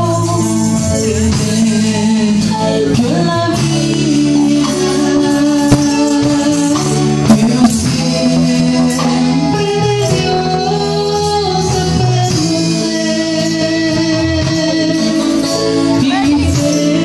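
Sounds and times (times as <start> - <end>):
bass guitar: 0.0 - 17.0
electric guitar: 0.0 - 17.0
sharp percussion hits: 4.9 - 8.4.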